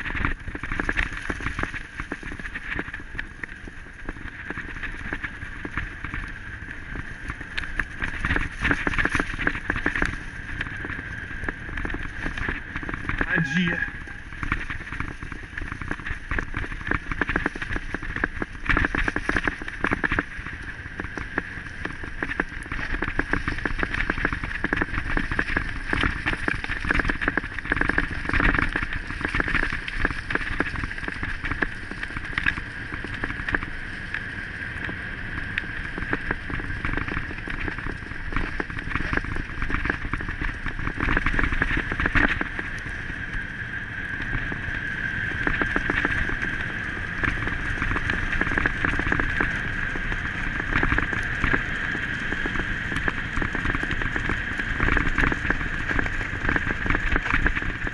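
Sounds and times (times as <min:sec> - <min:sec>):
wheeled rig rattling on dirt trail: 0:00.0 - 0:57.9
wind on microphone: 0:00.0 - 0:57.9
steady high tone: 0:13.3 - 0:14.2.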